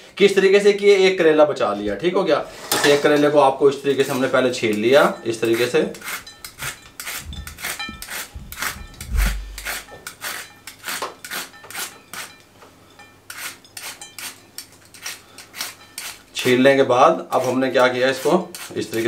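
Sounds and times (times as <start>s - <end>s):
peeler scraping gourd skin: 4.0s - 12.5s, 13.3s - 16.6s, 17.2s - 19.0s
dull low bump: 8.3s - 9.6s.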